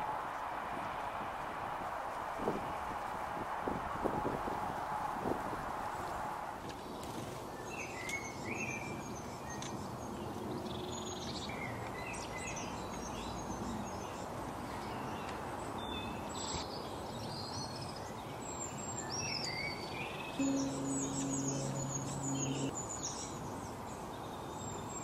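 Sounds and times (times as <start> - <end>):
outdoor background rush: 0.0 - 25.0
wild birds chirping: 17.4 - 23.3.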